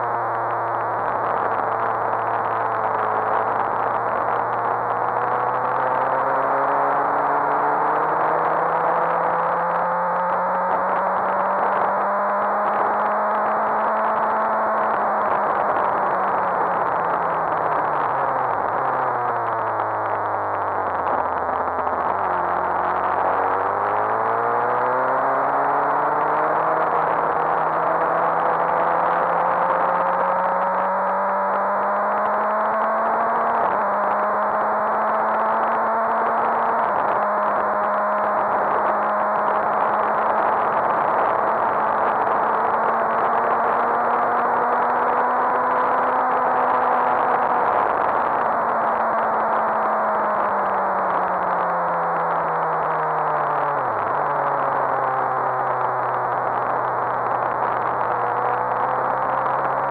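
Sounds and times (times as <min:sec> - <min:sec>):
motorcycle engine: 0:19.7 - 0:52.2.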